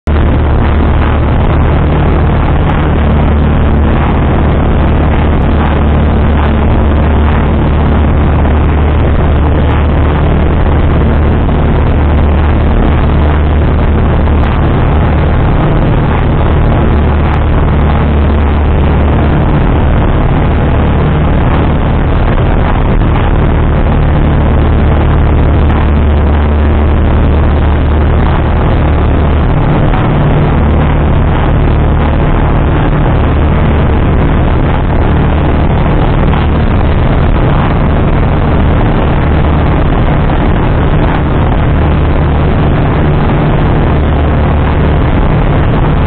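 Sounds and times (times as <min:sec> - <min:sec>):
air rushing noise: 0:00.0 - 0:46.0
light aircraft engine droning: 0:00.0 - 0:46.0.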